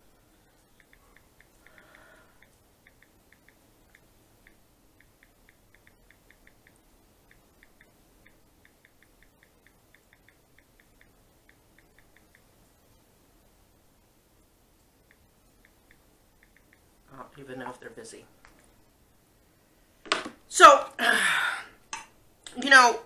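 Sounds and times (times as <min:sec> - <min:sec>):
phone keyboard ticks: 0:00.7 - 0:12.5, 0:15.0 - 0:16.9.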